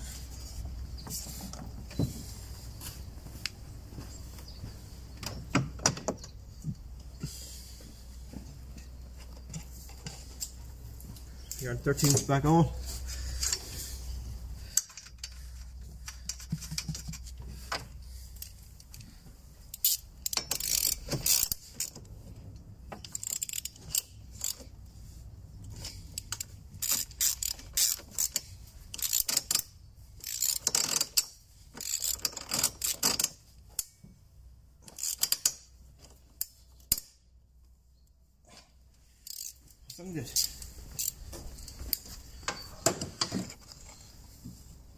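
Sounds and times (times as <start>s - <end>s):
socket ratchet clicking: 19.8s - 22.0s, 26.2s - 33.9s, 39.2s - 39.6s.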